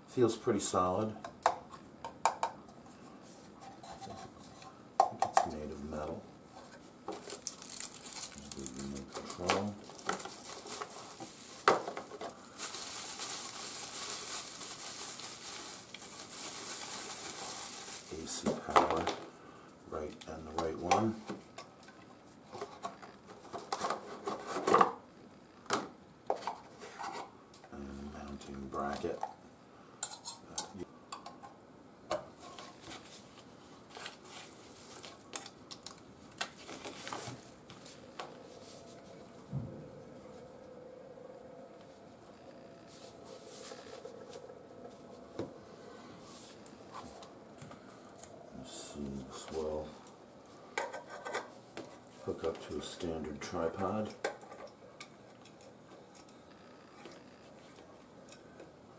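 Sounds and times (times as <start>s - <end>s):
bubble wrap crinkling: 6.7s - 19.1s, 32.6s - 39.4s, 42.9s - 45.5s.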